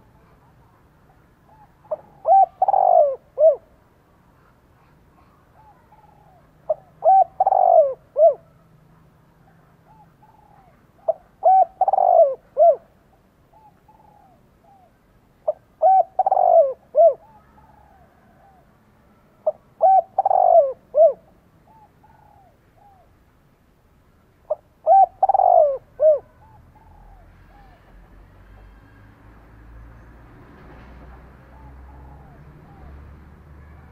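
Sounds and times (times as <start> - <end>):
dove cooing: 1.2 - 3.7, 4.8 - 8.8, 9.4 - 23.2, 24.5 - 28.1, 31.4 - 33.9.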